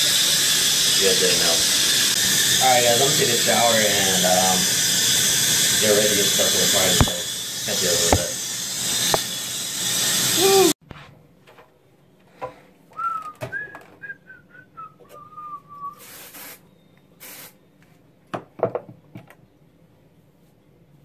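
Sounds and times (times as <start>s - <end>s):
short hissing bursts: 0.0s - 10.8s, 15.9s - 17.6s
shower water spraying: 0.0s - 10.8s, 15.9s - 16.6s, 17.2s - 17.6s
person whistling a short tune: 13.0s - 16.0s.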